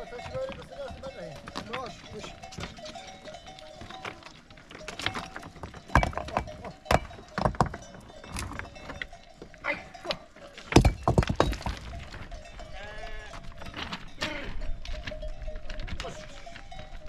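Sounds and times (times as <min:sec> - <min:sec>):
knocks and clatters: 0:00.1 - 0:09.2, 0:10.6 - 0:12.5
sheep bleating: 0:12.7 - 0:13.6.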